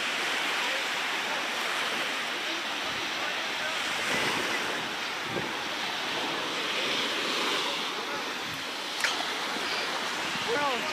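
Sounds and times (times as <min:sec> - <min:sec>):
waves breaking on sandy beach: 0:00.0 - 0:10.9
wind buffeting microphone: 0:03.9 - 0:10.9.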